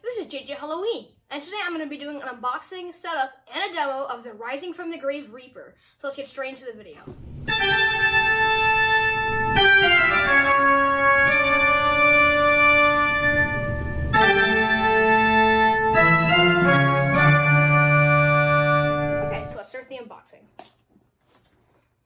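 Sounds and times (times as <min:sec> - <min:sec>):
sustained organ chords: 0:07.2 - 0:19.6.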